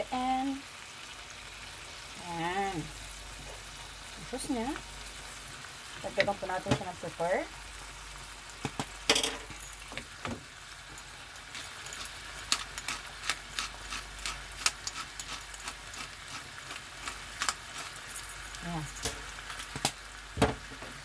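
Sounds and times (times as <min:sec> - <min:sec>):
shrimp sizzling in a pan: 0:00.0 - 0:21.0
pepper grinder clicking: 0:12.0 - 0:17.9.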